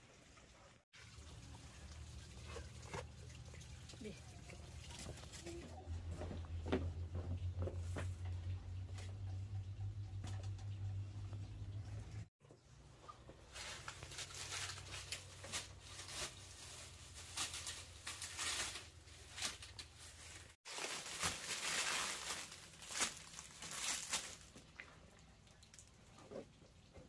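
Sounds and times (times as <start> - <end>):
material rustling and crinkling: 13.4 - 24.8.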